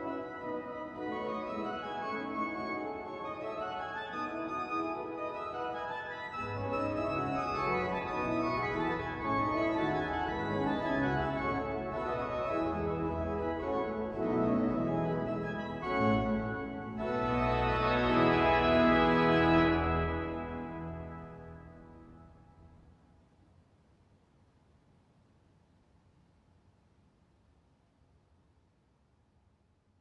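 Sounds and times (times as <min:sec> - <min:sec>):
pipe organ chords: 0:00.0 - 0:22.4.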